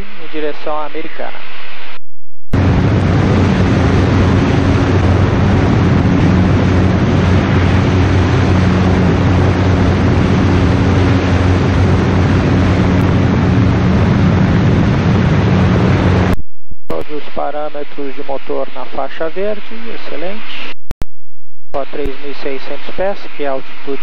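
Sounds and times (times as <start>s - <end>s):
propeller aircraft engine drone: 2.6s - 16.4s
wind rush: 2.6s - 16.4s.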